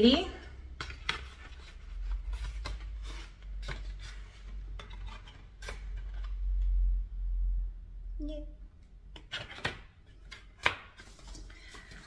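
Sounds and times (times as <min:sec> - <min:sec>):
paper postcards rustling and sliding: 0:00.6 - 0:06.7, 0:09.2 - 0:12.0.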